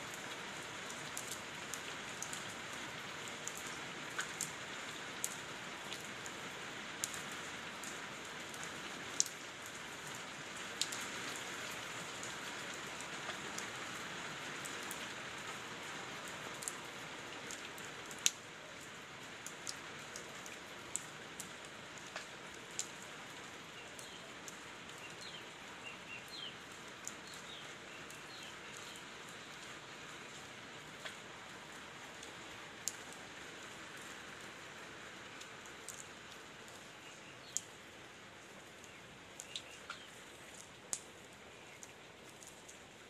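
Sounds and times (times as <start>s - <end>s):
rain falling into puddles: 0.0s - 43.0s
single close raindrops: 23.9s - 43.0s.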